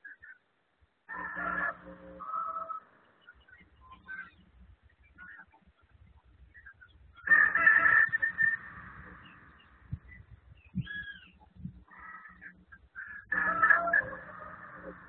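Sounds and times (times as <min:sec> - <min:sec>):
rooster crowing: 0:01.1 - 0:03.0, 0:07.2 - 0:09.8, 0:13.2 - 0:15.0
short bird calls: 0:01.1 - 0:15.0.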